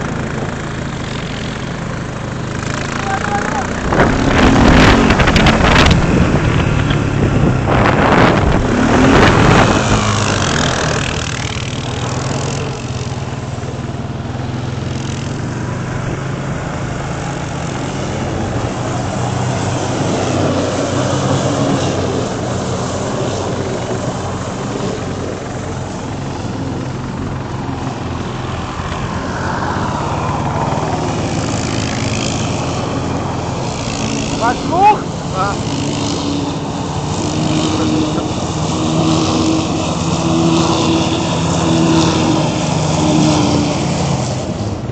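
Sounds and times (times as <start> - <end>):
atv engines revving: 0.0 - 44.9.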